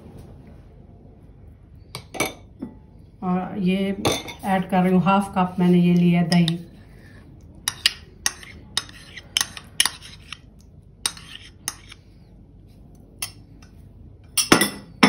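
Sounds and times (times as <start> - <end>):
spoon clinking against bowls: 6.3 - 6.6, 7.6 - 10.4, 11.0 - 12.0, 13.2 - 13.4.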